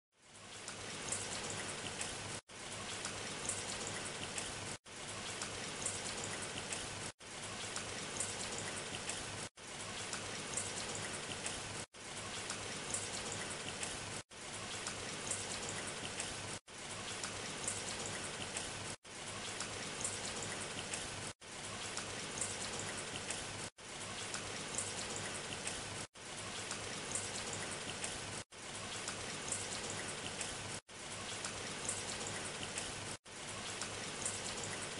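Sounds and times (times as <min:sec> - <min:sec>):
rain pattering: 0:00.2 - 0:34.9.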